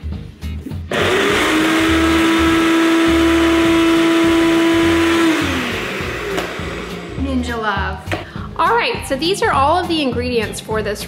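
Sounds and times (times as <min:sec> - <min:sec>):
blender motor whining: 0:00.9 - 0:07.8.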